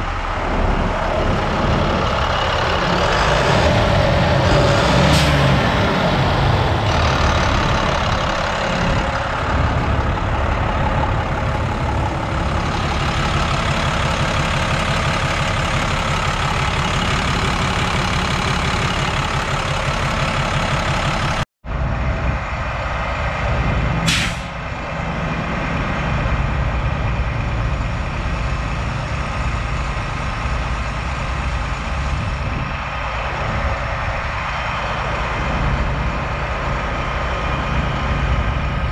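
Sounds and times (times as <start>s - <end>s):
diesel truck engine idling: 0.0s - 38.9s
short hiss: 24.1s - 24.5s.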